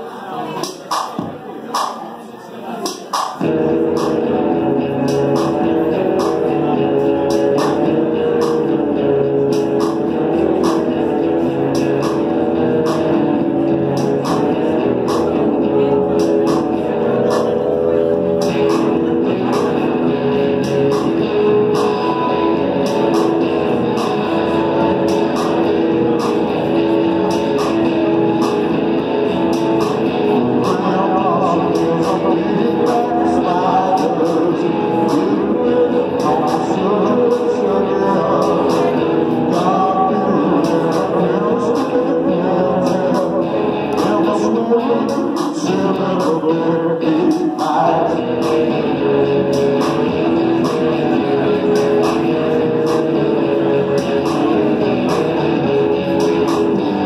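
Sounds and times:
drums keeping a beat: 0.6 - 2.1, 2.8 - 57.0
live rock band playing: 2.9 - 57.0
electric guitar: 3.4 - 57.0
man singing: 29.3 - 57.0.

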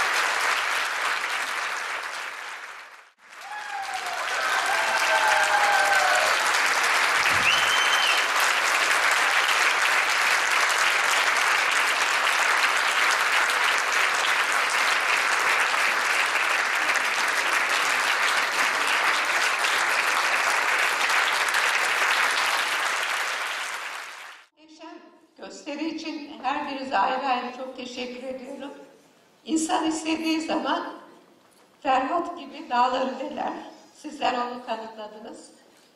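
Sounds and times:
audience applauding: 0.0 - 24.5.

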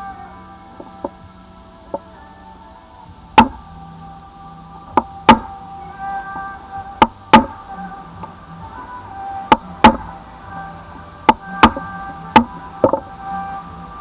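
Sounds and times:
background music: 0.0 - 14.0
hammer striking chisel: 3.4 - 3.6, 5.0 - 5.5, 7.0 - 7.6, 9.5 - 10.1, 11.3 - 13.0.

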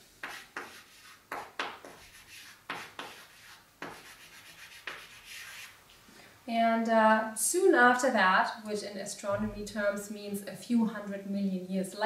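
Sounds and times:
chalk scratching on chalkboard: 0.2 - 5.8.

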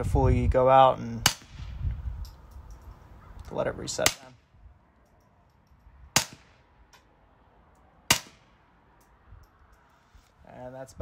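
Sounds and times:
suppressed pistol shots: 1.2 - 1.8, 6.1 - 7.1, 8.1 - 8.6.

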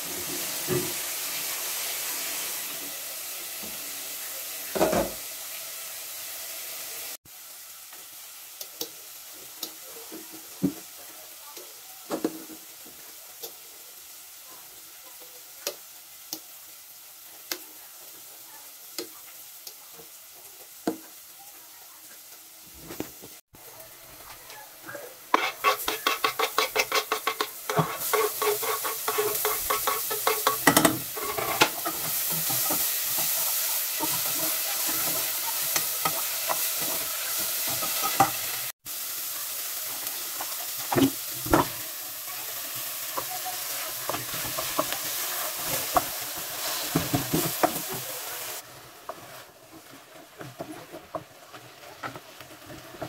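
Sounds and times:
frying sizzle: 0.0 - 53.0
wooden spoon scraping pot: 25.3 - 38.4.

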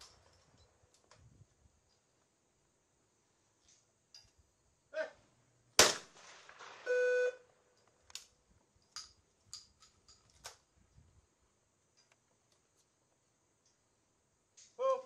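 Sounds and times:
person calling out: 4.9 - 5.2, 14.8 - 15.0
shotgun shot with echo: 5.8 - 6.9
electronic beep: 6.9 - 7.4.

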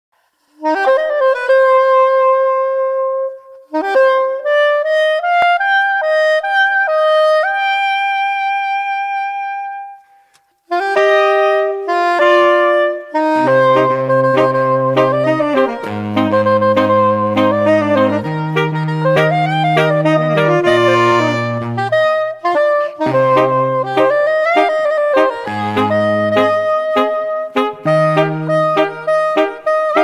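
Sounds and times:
solo saxophone melody: 0.5 - 30.0
low accompanying notes: 10.7 - 30.0.

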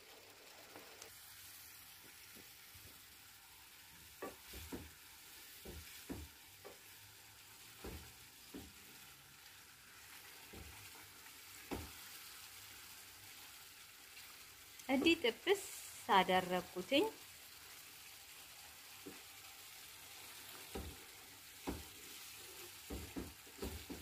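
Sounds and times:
sauce sizzling in a frying pan: 0.0 - 24.0
wooden spoon scraping a pan: 4.0 - 12.4, 18.9 - 24.0.

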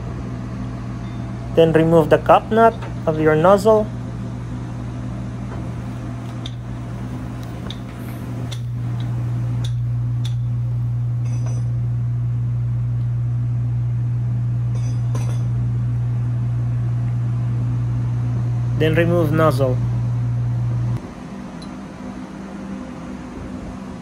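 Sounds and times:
low machinery hum: 0.0 - 24.0
wrench clinking on metal: 11.2 - 11.7, 14.7 - 15.5.

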